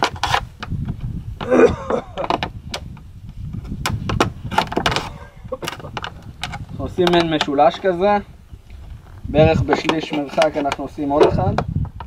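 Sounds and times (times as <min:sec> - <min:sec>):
plastic bottle crackling and clicking: 0:00.0 - 0:03.1, 0:03.8 - 0:07.6, 0:09.7 - 0:12.0
wind rumble on microphone: 0:00.0 - 0:12.0.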